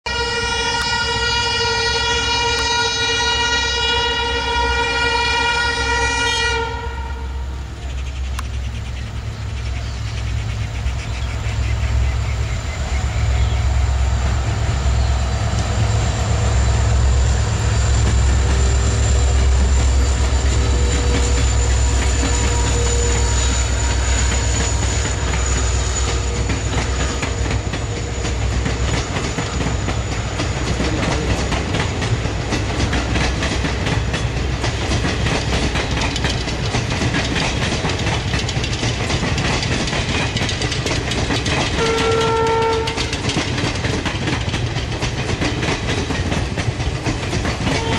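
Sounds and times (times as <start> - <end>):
train horn: 0.0 - 7.8, 11.5 - 31.7, 41.7 - 43.4, 47.6 - 47.9
diesel locomotive rumbling: 0.0 - 47.9
train wheels clacking on rails: 7.7 - 47.9.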